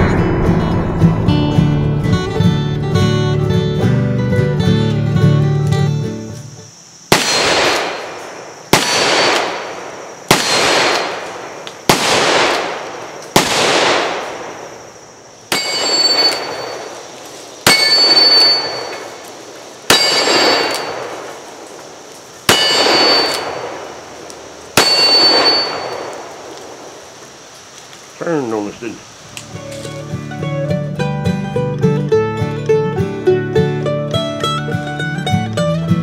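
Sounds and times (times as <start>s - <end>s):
revolver gunshots: 7.1s - 14.8s, 15.5s - 19.2s, 19.9s - 21.6s, 22.4s - 26.9s
steel plate target ringing: 15.5s - 17.0s, 17.7s - 19.2s, 19.9s - 21.1s, 22.5s - 23.6s, 24.8s - 26.1s.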